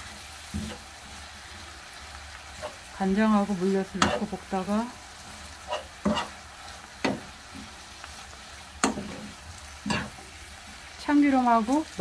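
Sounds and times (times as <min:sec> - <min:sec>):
food sizzling in a frying pan: 0:00.0 - 0:12.0
metal spoon clicking on pan: 0:08.8 - 0:09.2.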